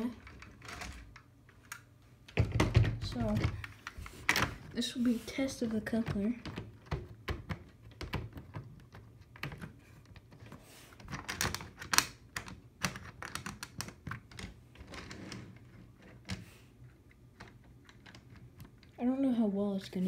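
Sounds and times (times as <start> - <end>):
plastic clicks and knocks: 0.2 - 4.6, 5.8 - 10.4.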